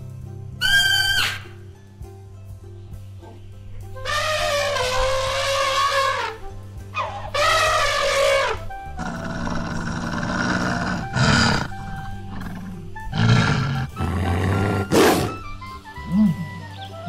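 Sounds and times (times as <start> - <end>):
background music: 0.0 - 17.0
short harsh animal calls: 0.6 - 1.5, 4.0 - 9.8
elephant trumpeting: 0.6 - 1.6, 4.0 - 17.0.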